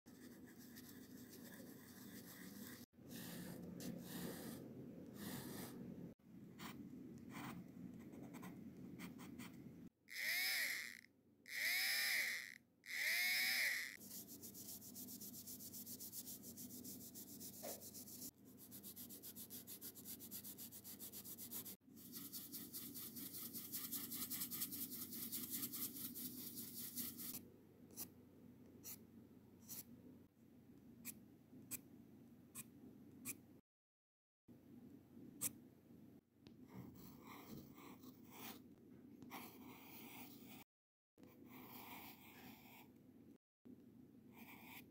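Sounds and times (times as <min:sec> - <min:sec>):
pencil scratching on paper: 0:00.1 - 0:05.8, 0:06.6 - 0:09.6, 0:13.0 - 0:28.1, 0:29.6 - 0:29.9, 0:36.7 - 0:38.6, 0:39.2 - 0:40.6, 0:41.2 - 0:42.9, 0:44.3 - 0:44.9
soft brush strokes: 0:14.0 - 0:28.1.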